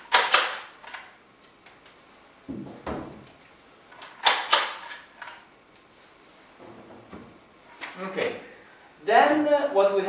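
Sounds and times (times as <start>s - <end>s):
knocks on wooden cabinet: 2.5s - 3.2s.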